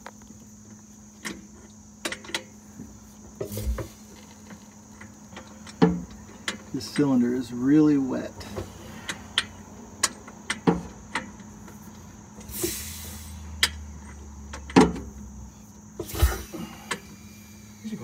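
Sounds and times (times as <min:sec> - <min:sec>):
metal clicks and knocks: 0:02.0 - 0:02.5, 0:03.4 - 0:07.2, 0:09.1 - 0:11.8
short hiss: 0:12.4 - 0:13.6, 0:16.0 - 0:17.6
dull thump: 0:16.0 - 0:16.7.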